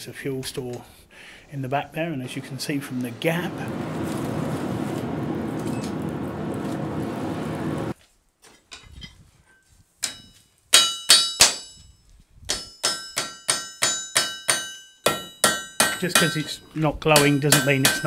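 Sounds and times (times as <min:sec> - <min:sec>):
forge fire rushing: 0:01.5 - 0:08.0
hammer ringing on anvil: 0:12.5 - 0:16.5, 0:17.2 - 0:18.0.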